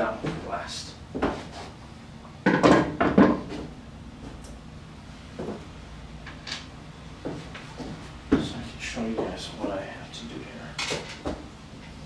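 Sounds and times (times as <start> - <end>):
tools clattering on a workbench: 2.5 - 3.6, 6.3 - 6.7, 10.8 - 11.4.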